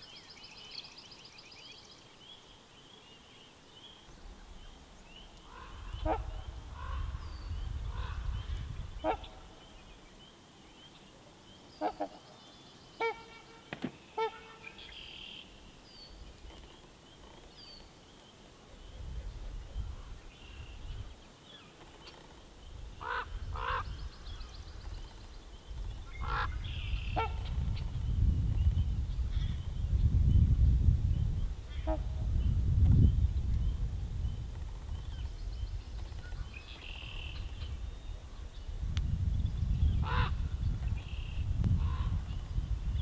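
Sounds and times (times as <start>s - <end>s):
swans honking: 13.0s - 15.4s.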